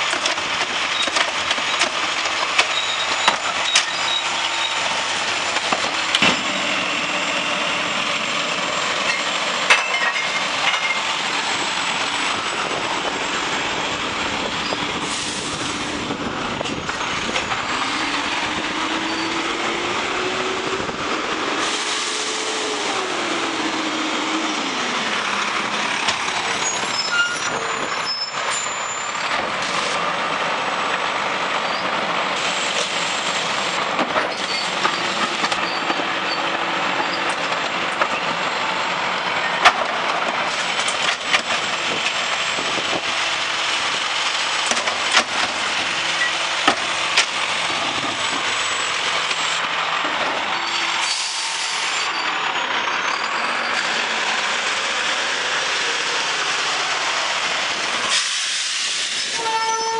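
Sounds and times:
garbage truck engine running: 0:00.0 - 0:59.4.

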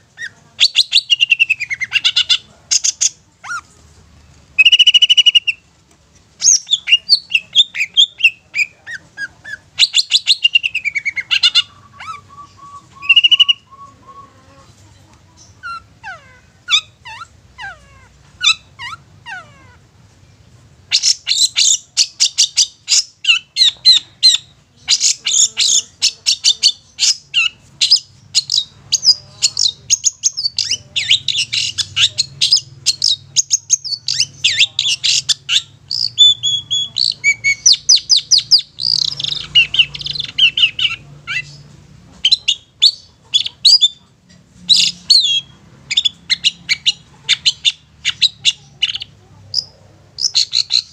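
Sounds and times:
bird singing: 0:04.6 - 0:05.6, 0:06.4 - 0:14.7, 0:20.9 - 0:44.0.

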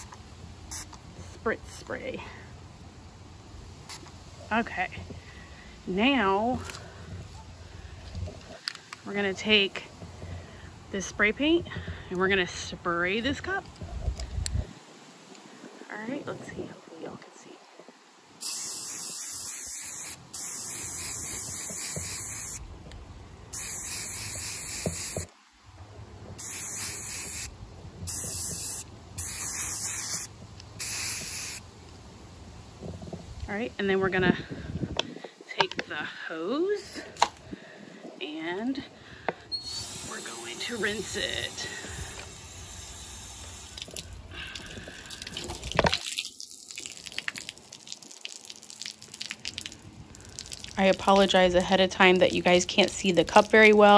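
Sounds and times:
spray paint can hissing: 0:00.0 - 0:01.0, 0:18.4 - 0:22.6, 0:23.5 - 0:25.3, 0:26.4 - 0:31.6, 0:39.6 - 0:44.2
water dripping onto concrete: 0:43.4 - 0:53.9.

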